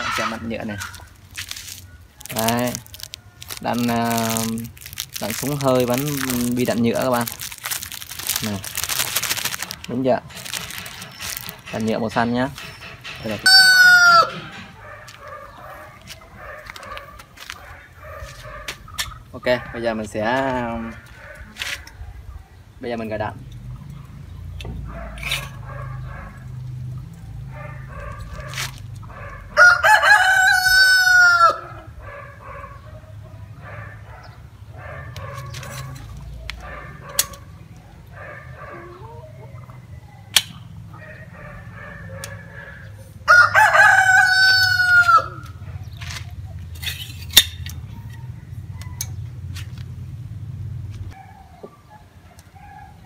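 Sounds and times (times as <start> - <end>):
rooster crowing: 13.4 - 15.8, 29.1 - 32.2, 41.0 - 45.6.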